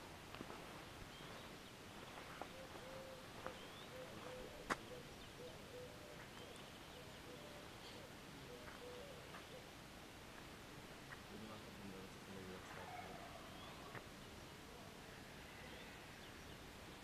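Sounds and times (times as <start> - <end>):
faint bird chirps: 1.1 - 9.7, 12.7 - 17.0.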